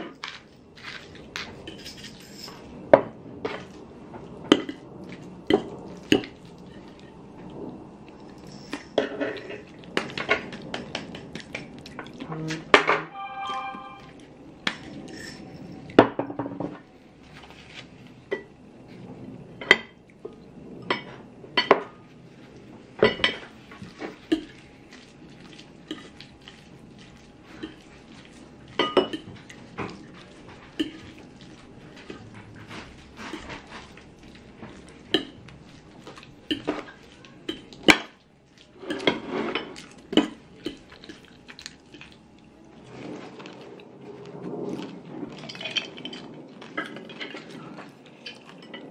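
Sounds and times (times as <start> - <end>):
cutlery clinking on plates: 12.8 - 14.1.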